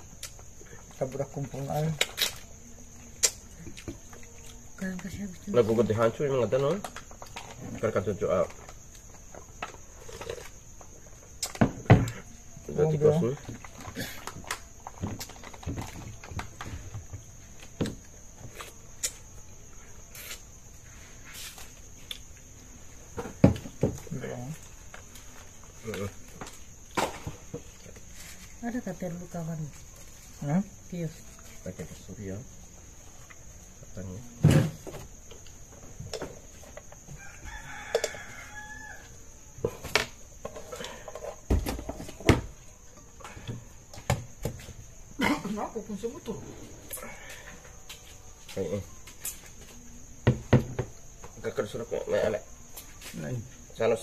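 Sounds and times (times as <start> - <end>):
night insects chirring: 0.0 - 54.0
rooster crowing: 37.1 - 39.6.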